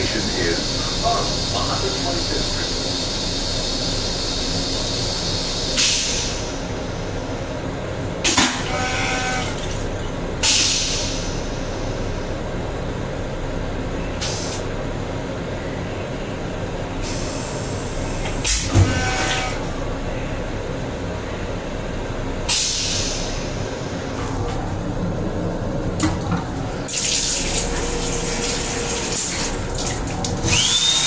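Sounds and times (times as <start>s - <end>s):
electric railcar running: 0.0s - 5.3s.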